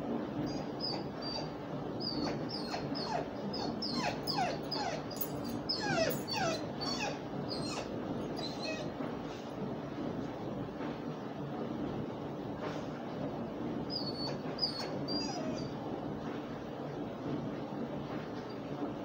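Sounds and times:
dog whimpering: 0:00.4 - 0:09.0, 0:14.0 - 0:15.8.

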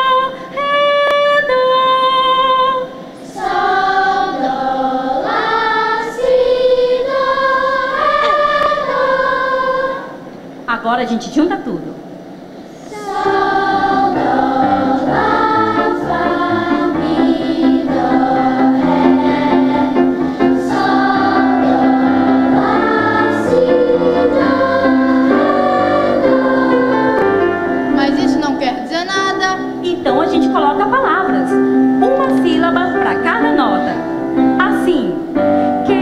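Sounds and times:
children's choir singing: 0:00.0 - 0:10.3, 0:12.8 - 0:28.6.

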